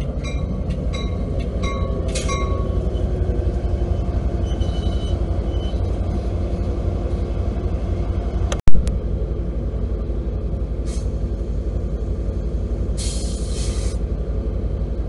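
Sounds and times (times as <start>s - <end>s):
diesel locomotive rumbling: 0.0s - 15.0s
air hissing: 13.0s - 14.0s.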